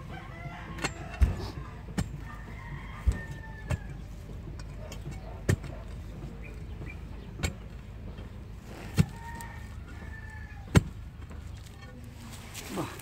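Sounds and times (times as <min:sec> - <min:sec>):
digging bar thudding into earth: 0:08.7 - 0:09.4, 0:10.6 - 0:11.0.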